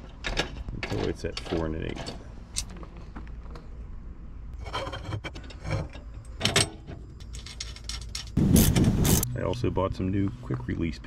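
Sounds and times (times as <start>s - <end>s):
metal clicks and knocks: 0.0s - 2.8s, 5.1s - 8.4s.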